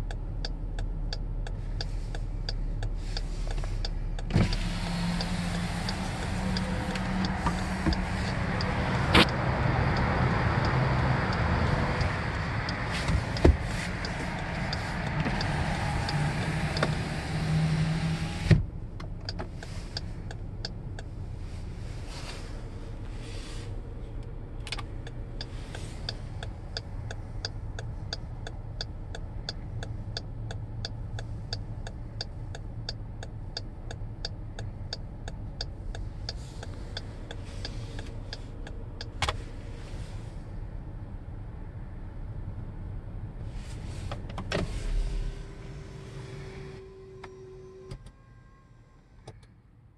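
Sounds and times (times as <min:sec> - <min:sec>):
whooshing hum inside car: 0:00.0 - 0:49.9.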